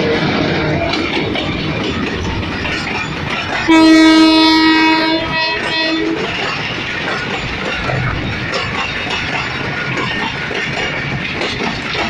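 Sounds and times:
freight wagons rolling past: 0.0s - 12.0s
locomotive air horn: 3.7s - 6.2s.

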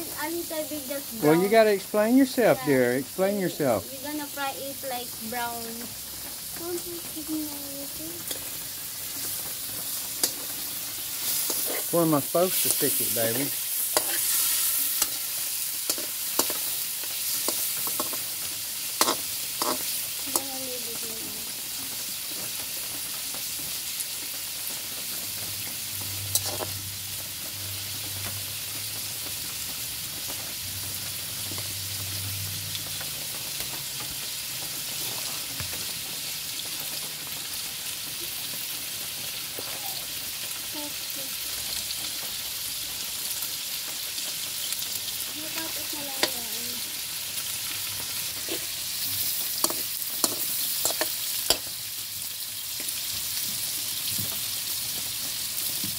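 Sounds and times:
meat sizzling in oil: 0.0s - 55.9s
metal spatula clicking on pan: 10.2s - 10.4s, 15.9s - 16.7s, 19.0s - 20.5s, 49.6s - 51.7s.

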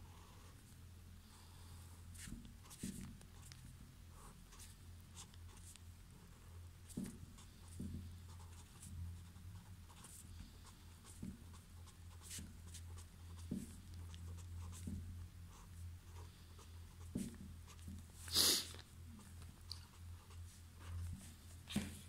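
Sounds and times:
steady low hum: 0.0s - 22.0s
pen scratching on paper: 6.8s - 10.2s, 11.0s - 14.9s.

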